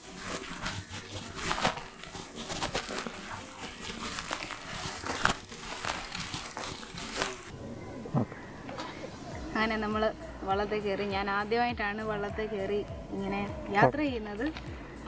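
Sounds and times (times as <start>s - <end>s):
footsteps on dirt and grass: 0.0s - 7.5s.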